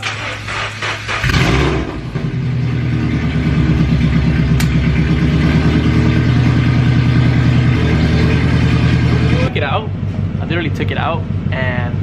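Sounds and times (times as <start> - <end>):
car engine idling: 0.0 - 12.0
sharp click: 4.6 - 4.8.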